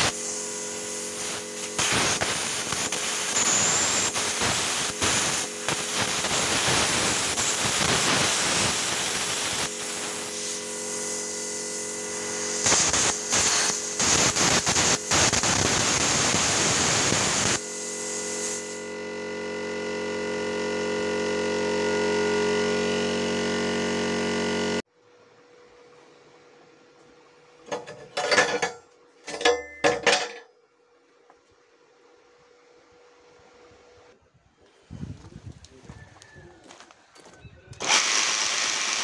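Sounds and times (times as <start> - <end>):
plasma cutter hissing and crackling: 0.0 - 18.8
hum: 0.0 - 35.8.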